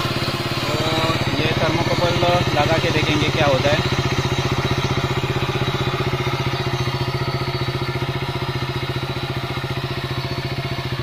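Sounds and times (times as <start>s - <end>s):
motorcycle engine idling: 0.0s - 11.0s.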